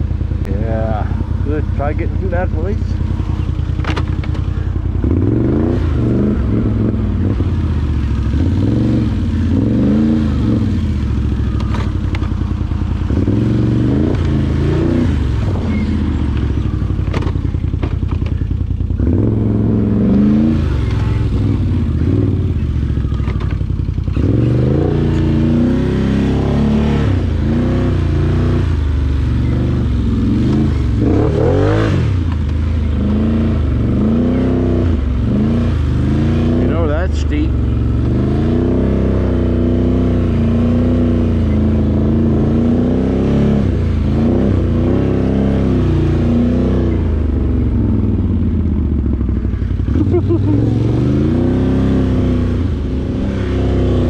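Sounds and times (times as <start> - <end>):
atv engine revving: 0.0 - 54.0
knocks and rattles: 17.0 - 18.6.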